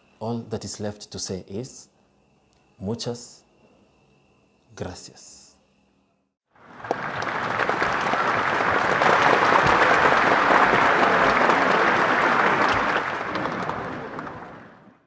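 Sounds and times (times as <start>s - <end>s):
audience applauding: 6.6s - 15.0s.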